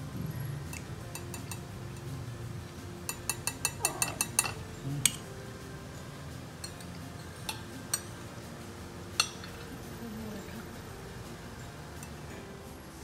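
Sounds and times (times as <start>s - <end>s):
low room noise: 0.0s - 13.0s
metal spoon clinking on plates: 0.7s - 2.1s, 3.1s - 5.3s, 6.6s - 8.2s, 9.2s - 9.8s, 11.9s - 12.3s.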